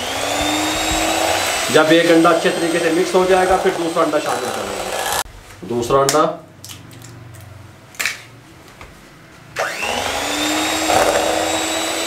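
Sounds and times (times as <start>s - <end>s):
electric hand mixer whining: 0.0s - 5.2s, 9.6s - 12.0s.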